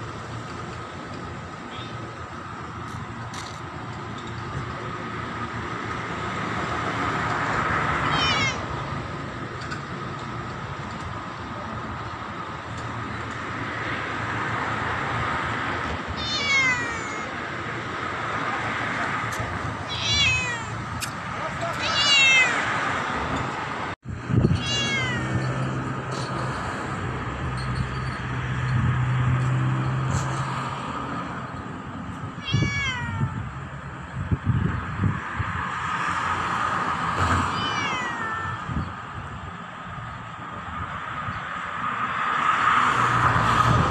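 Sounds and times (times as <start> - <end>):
cat meowing: 8.0 - 8.7, 16.2 - 17.4, 19.9 - 20.8, 21.5 - 22.7, 24.5 - 25.6, 32.4 - 33.5, 37.5 - 38.8.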